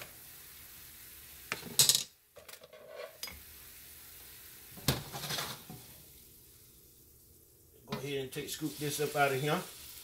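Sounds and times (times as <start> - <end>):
faint sizzle: 0.0 - 10.0
spoon scraping wok: 2.6 - 3.4, 5.0 - 5.9.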